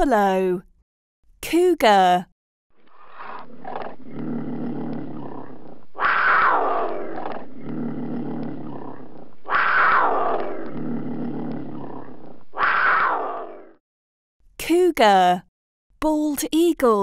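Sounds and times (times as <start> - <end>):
cougar crying: 2.9 - 13.7.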